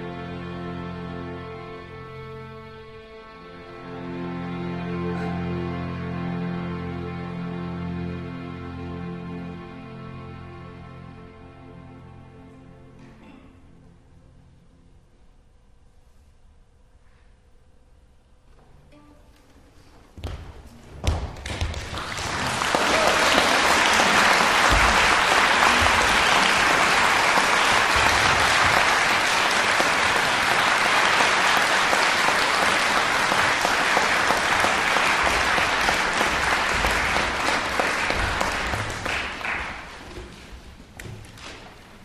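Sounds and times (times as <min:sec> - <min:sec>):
audience applauding: 0:21.4 - 0:40.3.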